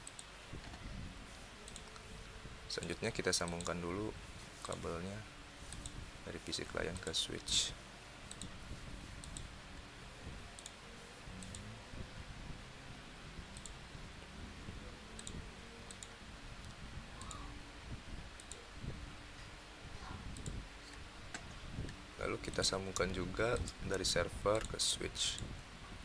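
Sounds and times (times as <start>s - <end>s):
faint room noise: 0.0s - 26.0s
computer mouse clicking: 1.6s - 2.1s, 2.8s - 3.8s, 5.7s - 6.0s, 8.3s - 8.5s, 9.2s - 9.5s, 10.6s - 10.8s, 11.4s - 11.7s, 13.5s - 13.8s, 15.2s - 17.4s, 18.4s - 18.6s, 20.3s - 23.8s.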